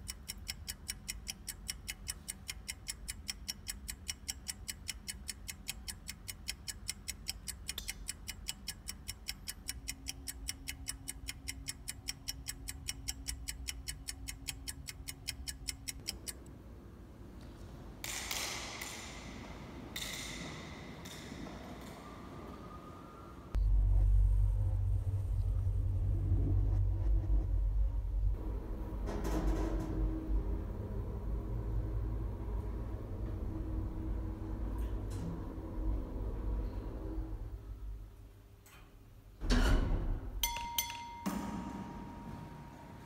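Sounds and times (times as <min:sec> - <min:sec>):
fast clock-like ticking: 0:00.0 - 0:16.4
low hum: 0:20.8 - 0:38.2.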